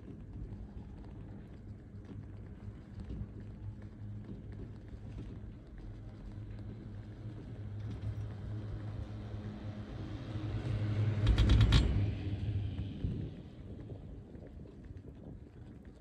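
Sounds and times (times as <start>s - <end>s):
chairlift haul rope rumble: 5.0s - 15.7s.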